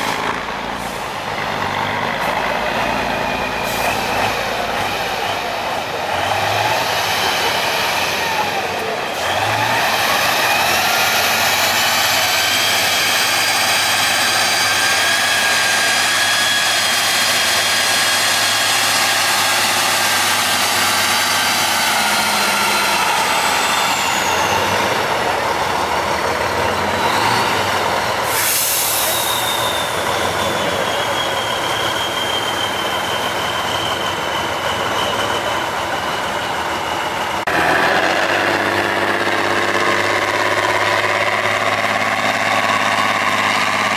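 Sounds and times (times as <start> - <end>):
heavy truck engine: 0.0 - 43.9
truck engine with whining drivetrain: 0.0 - 43.9
short loud hiss: 28.3 - 29.5.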